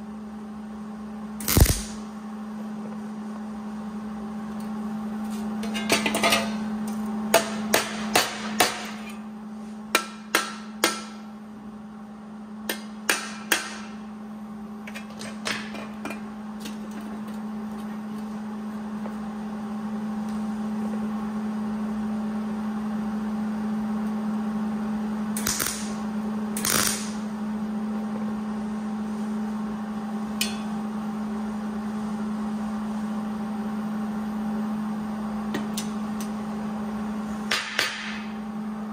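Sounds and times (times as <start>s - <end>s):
steady low hum: 0.0s - 38.9s.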